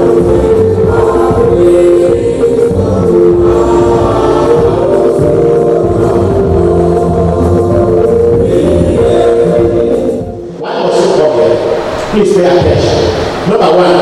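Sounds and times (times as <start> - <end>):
group singing slow song: 0.0 - 10.9.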